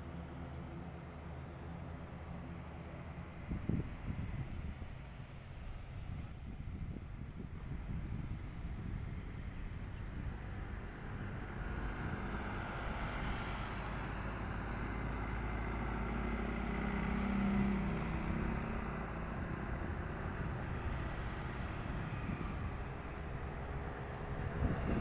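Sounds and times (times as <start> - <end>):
turboprop airliner taxiing: 0.0 - 25.0.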